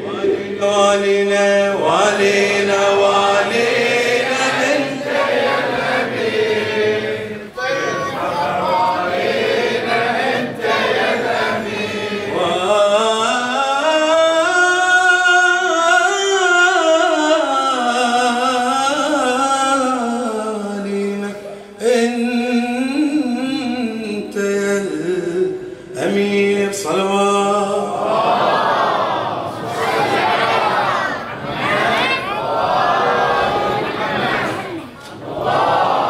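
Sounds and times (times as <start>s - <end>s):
man chanting into a microphone: 0.0s - 4.8s, 12.4s - 28.0s.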